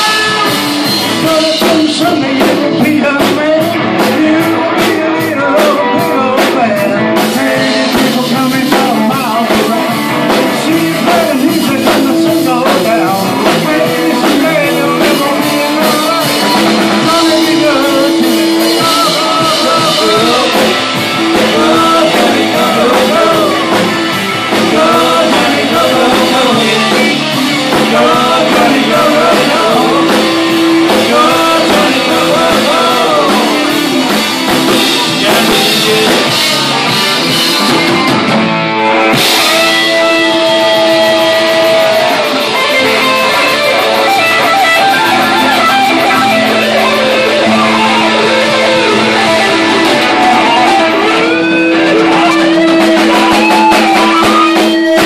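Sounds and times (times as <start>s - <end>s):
live rock band playing: 0.0s - 55.0s.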